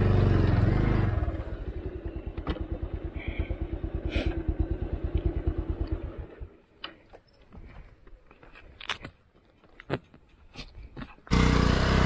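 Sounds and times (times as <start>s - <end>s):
motorcycle engine idling: 0.0s - 6.8s.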